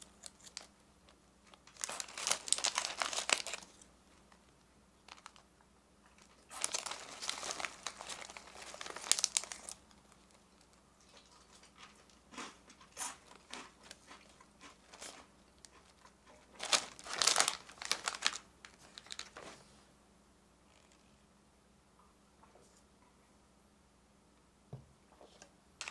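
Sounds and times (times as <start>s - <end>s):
plastic snack bag crinkling: 0.0s - 0.8s, 1.4s - 5.5s, 6.1s - 19.6s.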